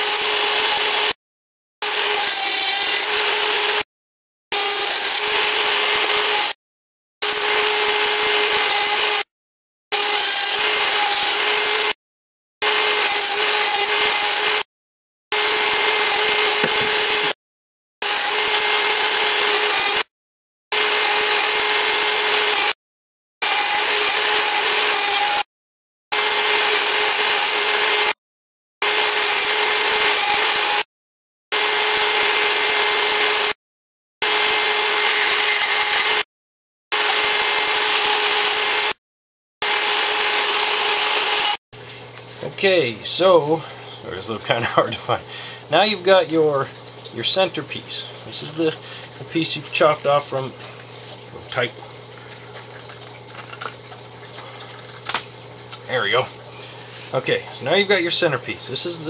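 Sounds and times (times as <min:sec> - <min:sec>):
small power tool motor whining: 0:00.0 - 0:01.2, 0:01.8 - 0:03.8, 0:04.5 - 0:06.6, 0:07.2 - 0:09.3, 0:09.9 - 0:12.0, 0:12.6 - 0:14.6, 0:15.3 - 0:17.4, 0:18.0 - 0:20.1, 0:20.7 - 0:22.8, 0:23.4 - 0:25.5, 0:26.1 - 0:28.2, 0:28.8 - 0:30.9, 0:31.6 - 0:33.6, 0:34.2 - 0:36.3, 0:36.9 - 0:39.0, 0:39.6 - 0:42.1.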